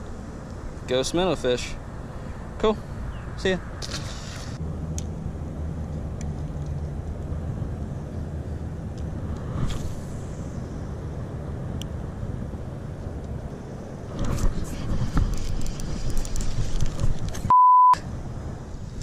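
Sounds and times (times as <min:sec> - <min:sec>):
low engine hum: 0:00.0 - 0:19.0.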